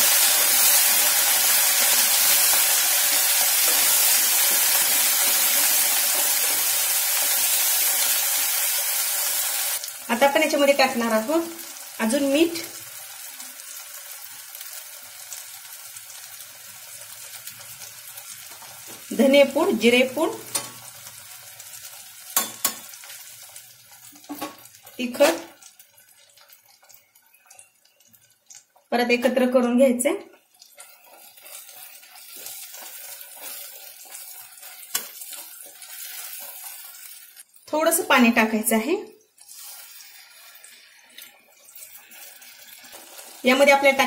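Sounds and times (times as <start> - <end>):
gravy sizzling in a pan: 0.0 - 44.0
spatula scraping a pan: 30.7 - 37.4, 39.4 - 43.4.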